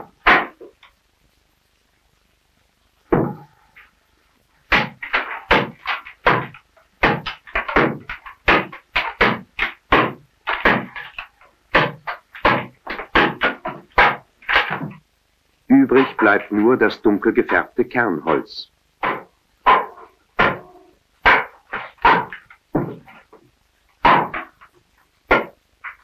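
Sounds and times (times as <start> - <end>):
hatchet chopping wood: 0.2 - 0.7, 4.7 - 15.0, 19.0 - 23.1, 24.0 - 24.7, 25.3 - 25.6.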